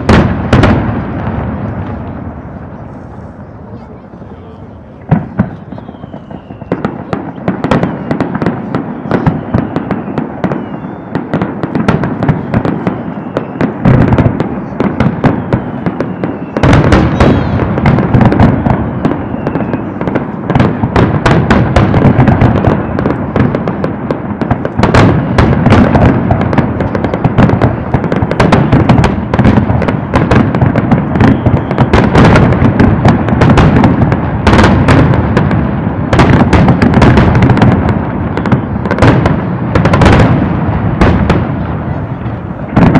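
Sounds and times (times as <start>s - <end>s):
fireworks bangs and crackles: 0.0s - 42.9s
faint descending whistles: 5.6s - 6.8s, 8.9s - 11.3s, 13.0s - 13.7s.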